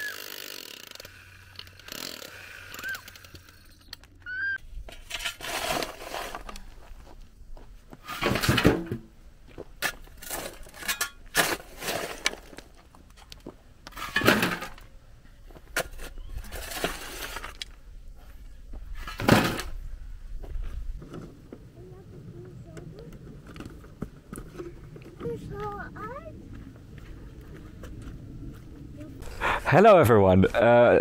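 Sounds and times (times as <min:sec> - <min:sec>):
spade scraping stony soil: 0:04.8 - 0:07.0, 0:08.0 - 0:08.7, 0:09.8 - 0:12.6, 0:13.9 - 0:14.8, 0:15.7 - 0:17.6.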